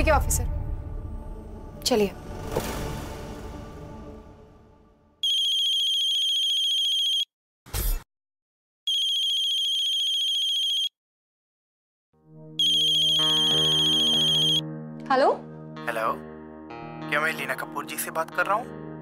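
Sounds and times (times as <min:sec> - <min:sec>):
phone ringing with trilling tone: 0:05.2 - 0:07.3, 0:08.9 - 0:10.9, 0:12.6 - 0:14.6
soft background music: 0:12.2 - 0:19.0.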